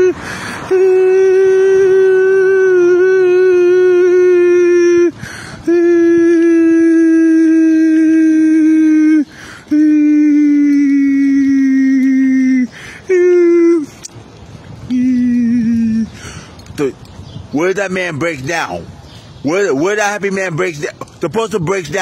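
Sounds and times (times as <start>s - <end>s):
man singing long high notes: 0.0s - 14.0s, 14.9s - 16.1s
quick noisy breath: 0.2s - 0.7s, 5.2s - 5.6s, 9.3s - 9.7s, 12.7s - 13.1s, 16.1s - 16.6s.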